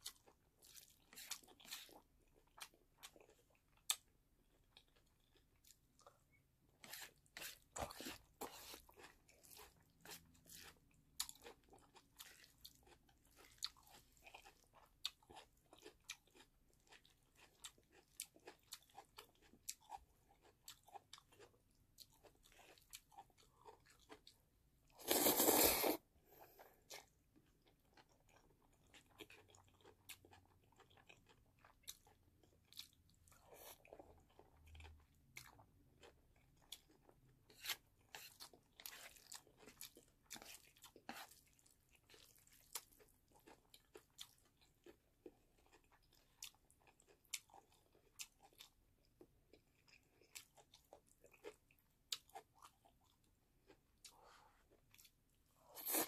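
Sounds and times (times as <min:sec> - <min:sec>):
chewing with wet mouth clicks: 0:00.0 - 0:24.4, 0:26.9 - 0:55.3
noodle slurp: 0:25.0 - 0:26.0, 0:55.7 - 0:56.0.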